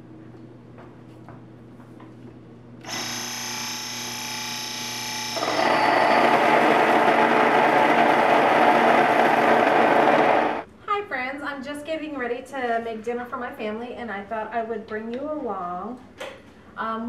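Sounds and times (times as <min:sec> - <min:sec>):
grain mill motor whine: 0:02.8 - 0:10.6
harsh grain grinding: 0:05.4 - 0:10.6.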